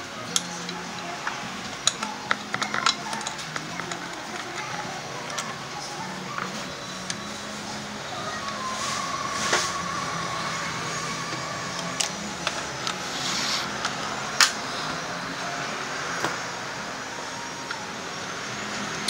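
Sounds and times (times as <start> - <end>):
cordless ratchet motor whine: 0.0 - 19.0
metallic clicks and clanks: 0.3 - 5.6.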